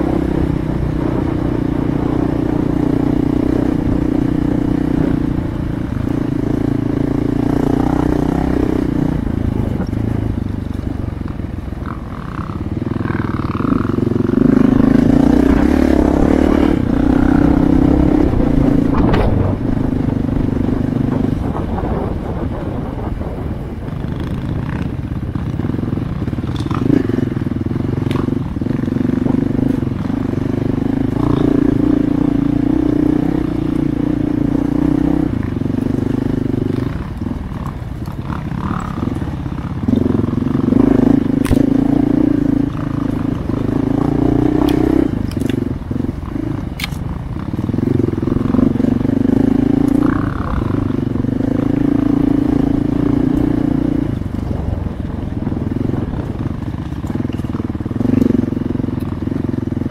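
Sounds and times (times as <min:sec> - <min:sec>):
dirt bike engine revving: 0:00.0 - 0:10.4, 0:11.8 - 0:59.9
sharp clicks and crackles: 0:26.3 - 0:27.1, 0:41.4 - 0:41.8, 0:44.6 - 0:45.7, 0:46.7 - 0:47.7, 0:56.2 - 0:59.3.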